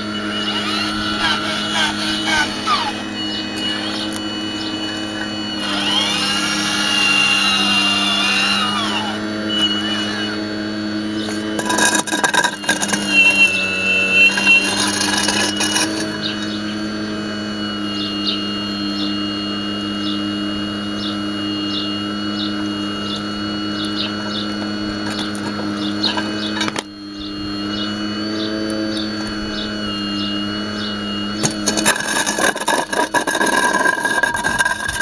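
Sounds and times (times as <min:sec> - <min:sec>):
hydraulic pump humming and whining: 0:00.0 - 0:35.0
bucket scraping gravelly soil: 0:11.2 - 0:16.4, 0:31.4 - 0:35.0.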